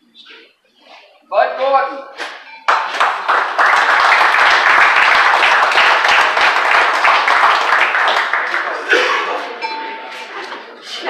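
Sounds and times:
crowd applauding: 2.7 - 9.6.

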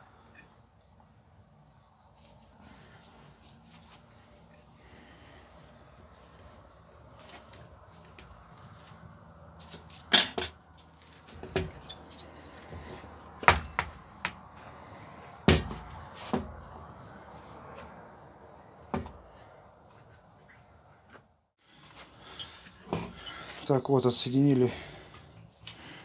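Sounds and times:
tools clattering on metal bench: 9.9 - 10.6.

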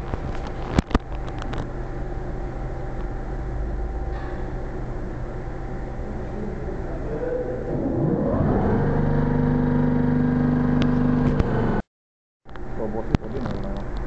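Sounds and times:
electric roller motors whining: 5.9 - 11.8.

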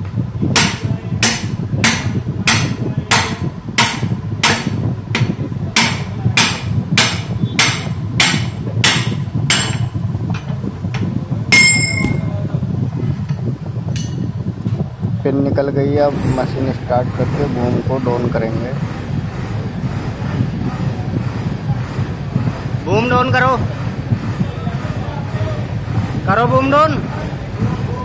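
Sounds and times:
sledgehammer striking steel: 0.6 - 9.9
ringing metallic blow: 11.5 - 12.4.

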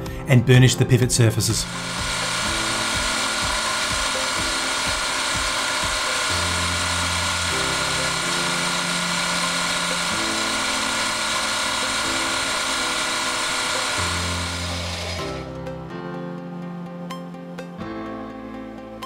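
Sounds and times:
soft background music: 0.0 - 19.0
lathe whirring: 1.4 - 15.6
burnisher rubbing on spinning metal: 1.6 - 15.4.

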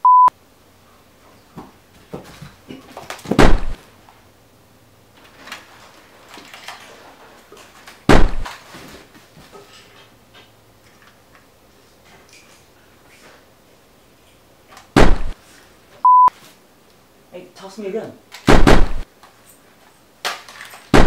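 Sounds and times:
loud bangs with deep thud: 3.3 - 3.8, 8.1 - 8.5, 15.0 - 15.4, 18.5 - 19.0.

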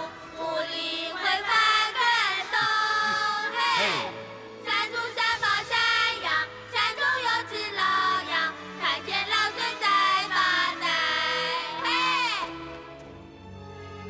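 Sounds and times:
musical accompaniment: 0.0 - 14.0.

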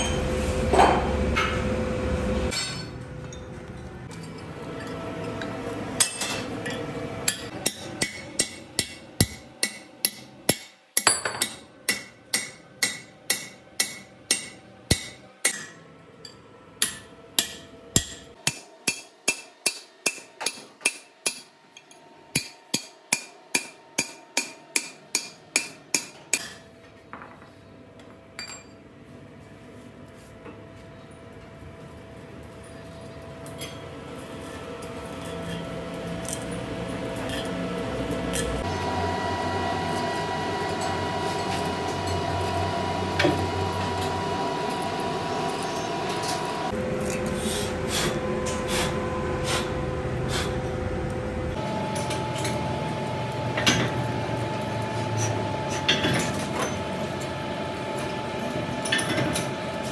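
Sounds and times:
hammer striking steel punch: 7.3 - 15.8, 16.8 - 21.5, 22.3 - 26.6.

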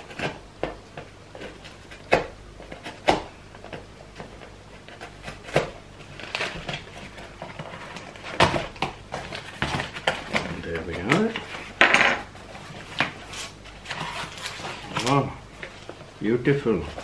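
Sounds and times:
scraping on cardboard: 0.0 - 11.8, 12.4 - 16.0.

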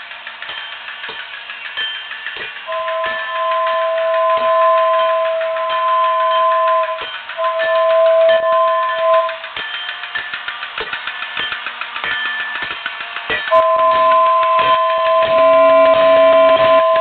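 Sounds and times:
toy train ticking and clicking: 0.0 - 17.0
toy train whistle blowing: 2.6 - 10.2, 13.3 - 17.0.

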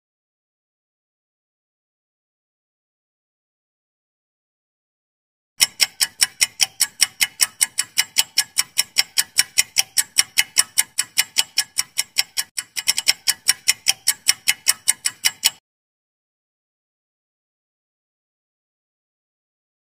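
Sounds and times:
sharp clock-like ticks: 5.6 - 15.6.

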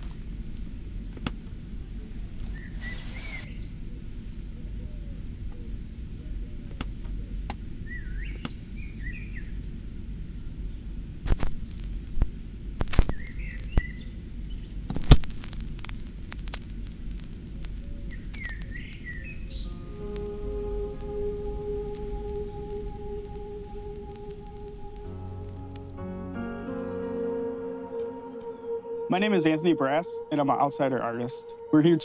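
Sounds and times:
birds chirping: 2.5 - 3.8, 18.0 - 32.0
steady low hum: 19.1 - 32.0.

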